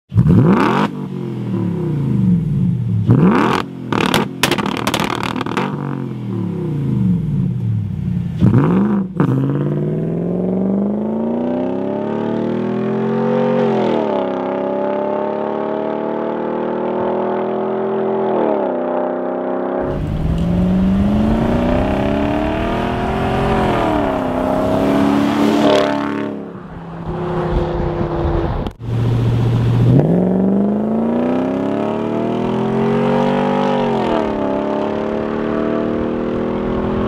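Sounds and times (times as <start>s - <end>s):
car engine revving: 0.1s - 7.6s, 19.8s - 37.0s
exhaust pops and bangs: 4.0s - 5.7s.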